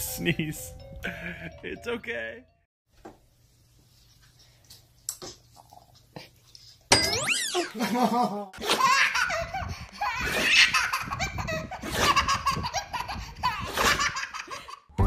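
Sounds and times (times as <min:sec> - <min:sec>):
baby laughing: 0:07.3 - 0:14.9.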